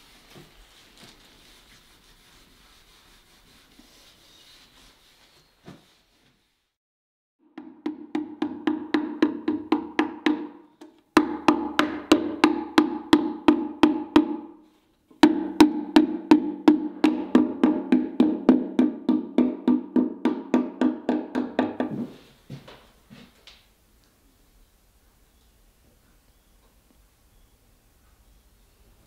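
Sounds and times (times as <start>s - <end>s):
mallet tapping wooden panel: 7.6s - 14.6s, 15.2s - 21.9s.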